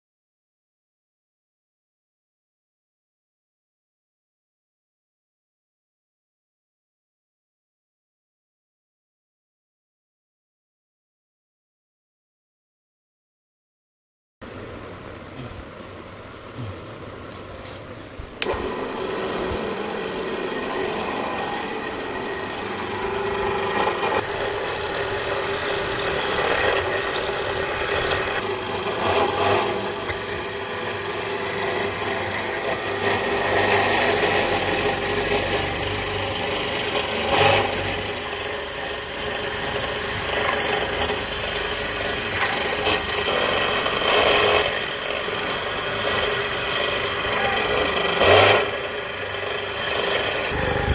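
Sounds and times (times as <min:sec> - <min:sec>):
bit grinding into wood: 0:18.4 - 0:50.9
electric motor running: 0:18.4 - 0:50.9.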